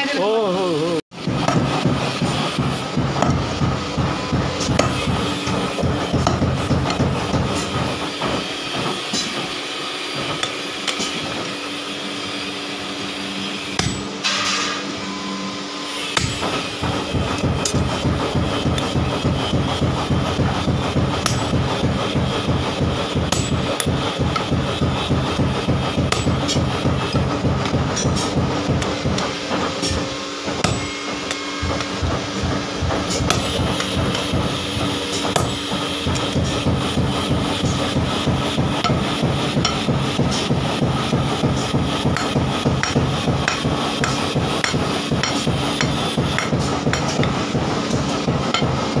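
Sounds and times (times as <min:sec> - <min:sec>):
hammer blows on anvil: 0:01.2 - 0:11.8, 0:12.8 - 0:49.0
steady low hum: 0:13.6 - 0:49.0.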